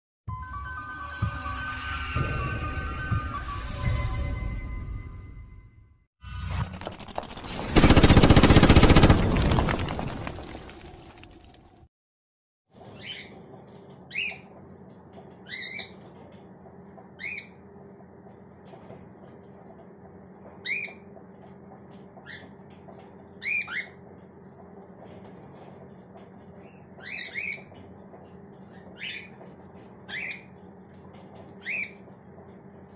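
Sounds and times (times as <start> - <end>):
cockatiels chirping: 17.2 - 17.5, 20.6 - 21.0, 23.4 - 24.0, 26.6 - 27.7, 28.7 - 29.4, 30.1 - 30.5, 31.6 - 32.0.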